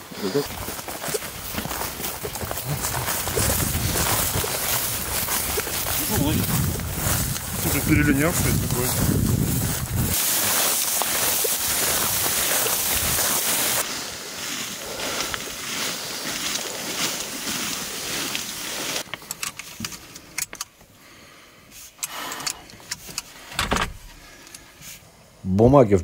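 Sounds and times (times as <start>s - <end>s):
wind rushing on microphone: 2.6s - 10.2s.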